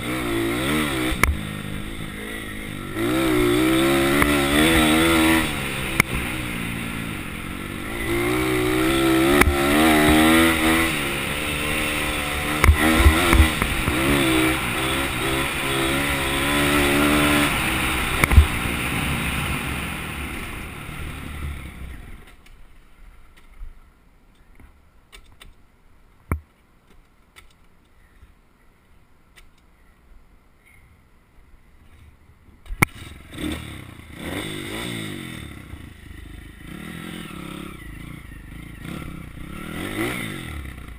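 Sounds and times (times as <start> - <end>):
pit bike engine revving: 0.0 - 22.0, 32.9 - 40.9.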